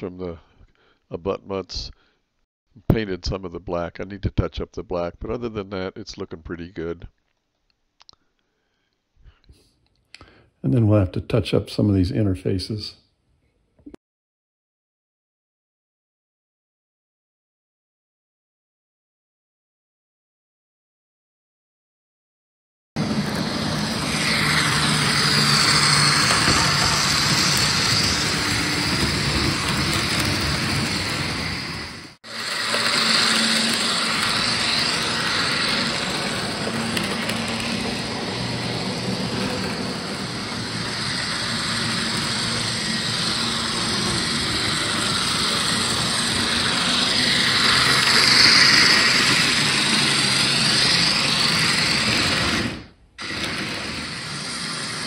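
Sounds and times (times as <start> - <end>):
model train wheels rattling: 23.0 - 55.0
small electric motor humming: 23.0 - 55.0.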